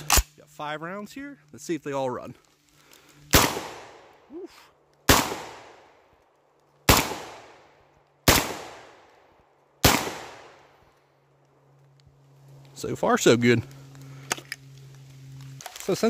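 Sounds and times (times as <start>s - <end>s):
shotgun shots with echo: 3.3s - 4.0s, 5.1s - 5.8s, 6.9s - 7.6s, 8.2s - 9.0s, 9.8s - 10.6s.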